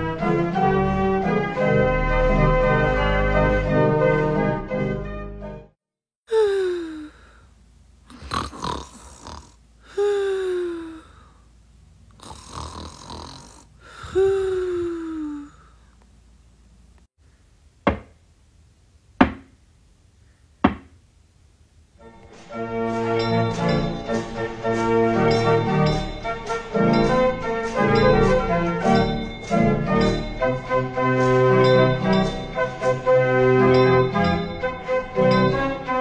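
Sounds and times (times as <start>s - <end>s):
person snoring: 6.3s - 7.4s, 8.1s - 11.4s, 12.1s - 15.9s
knocks on a door: 17.8s - 18.2s, 19.2s - 19.5s, 20.6s - 20.9s.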